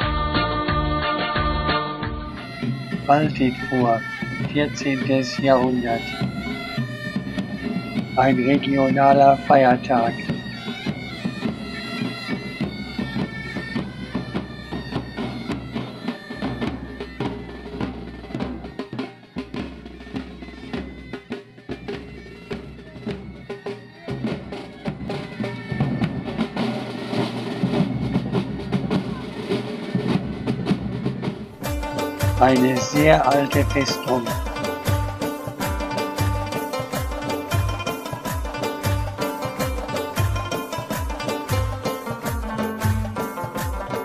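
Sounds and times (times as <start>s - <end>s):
drumbeats: 0.0s - 44.0s
bagpipes playing a tune: 2.3s - 18.9s, 31.6s - 44.0s.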